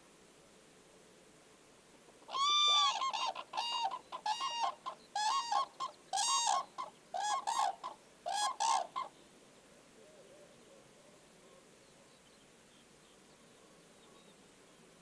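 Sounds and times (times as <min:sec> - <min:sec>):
cranes trumpeting calls: 0:02.3 - 0:09.1.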